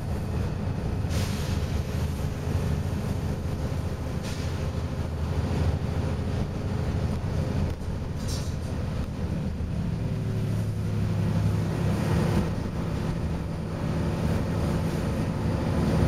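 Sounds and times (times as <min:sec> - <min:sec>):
bus engine drone: 0:00.0 - 0:16.0
brief air hisses: 0:01.1 - 0:02.2, 0:04.2 - 0:04.8.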